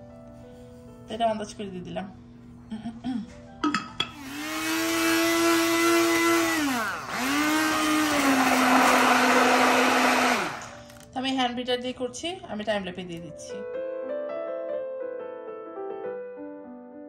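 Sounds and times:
electric hand mixer whining: 0:04.1 - 0:11.0.

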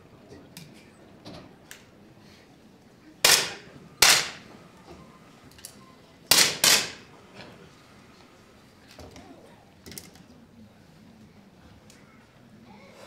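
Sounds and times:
air pistol shots with echo: 0:03.2 - 0:04.5, 0:06.3 - 0:07.1.

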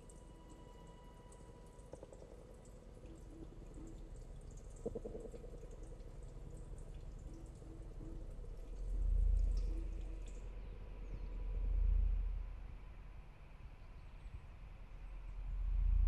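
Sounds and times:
low rumble: 0:08.3 - 0:13.2.

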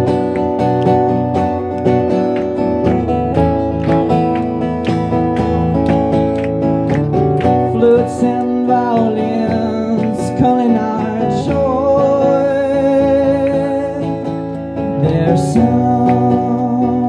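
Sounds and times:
acoustic guitar strumming: 0:00.0 - 0:17.0
man singing: 0:07.6 - 0:17.0.

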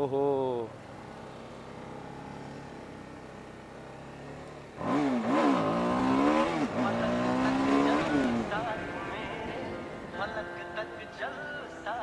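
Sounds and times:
motorcycle engine idling and revving: 0:00.0 - 0:12.0.

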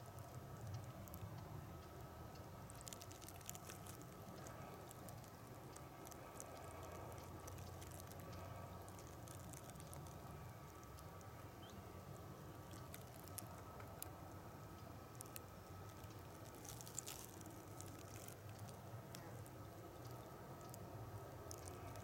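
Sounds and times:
faint low hum: 0:00.0 - 0:22.0
soft ticks: 0:00.0 - 0:22.0.

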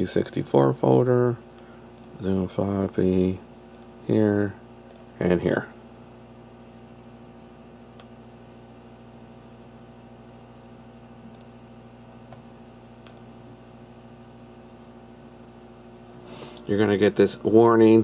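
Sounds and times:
low electrical hum: 0:00.0 - 0:18.0
computer mouse clicks: 0:02.0 - 0:02.2, 0:03.7 - 0:03.9, 0:11.3 - 0:11.5, 0:13.0 - 0:13.3.

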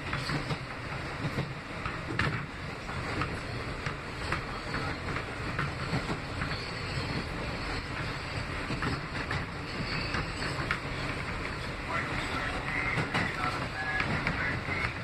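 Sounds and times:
steel wheels rumbling on rail: 0:00.0 - 0:15.0
wheels clicking over rail joints: 0:00.0 - 0:15.0.

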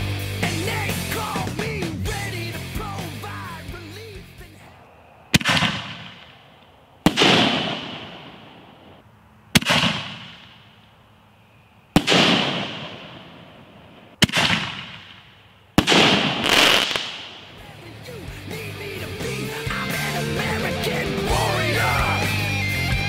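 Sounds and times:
firework shells booming: 0:05.3 - 0:10.8, 0:11.9 - 0:17.6.

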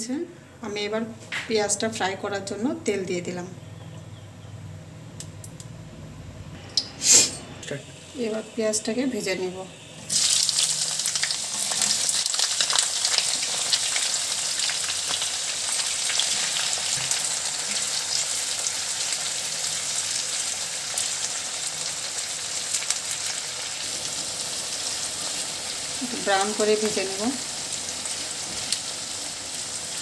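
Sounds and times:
onions sizzling in hot oil: 0:07.8 - 0:30.0.

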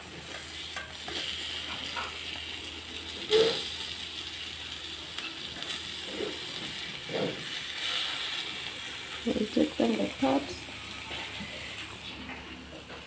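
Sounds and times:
sauce and eggs sizzling in pan: 0:00.0 - 0:12.8.

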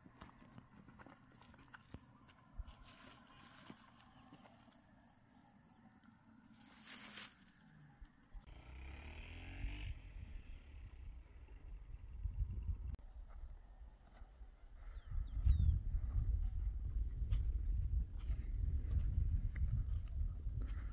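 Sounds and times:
insect chirping: 0:00.0 - 0:13.8.

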